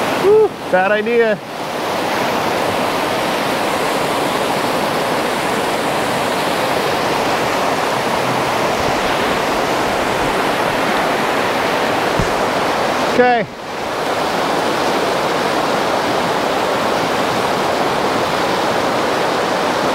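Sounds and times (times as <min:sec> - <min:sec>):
water rushing over rocks: 0:00.0 - 0:19.9.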